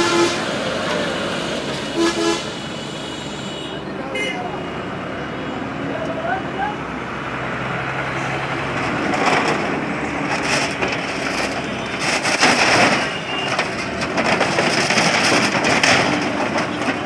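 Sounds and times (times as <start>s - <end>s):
wood and sheet metal crushing: 8.6s - 17.0s.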